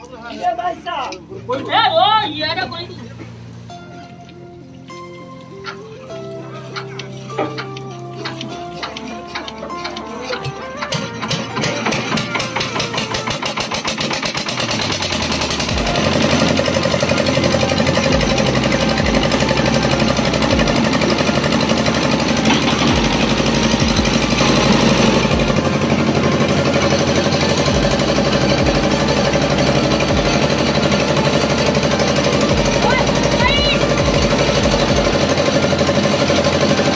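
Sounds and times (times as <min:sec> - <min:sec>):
stationary engine running: 0:08.8 - 0:36.9.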